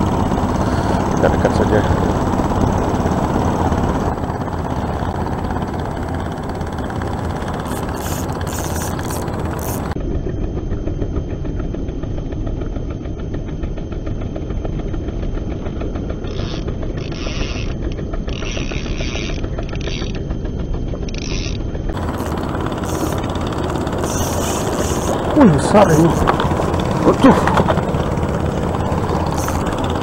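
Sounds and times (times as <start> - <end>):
choppy sea: 22.0 - 30.0.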